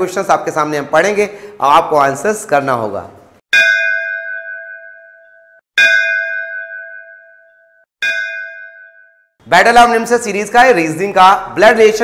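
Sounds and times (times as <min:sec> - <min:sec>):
bell-like chime ringing: 0:03.6 - 0:09.4.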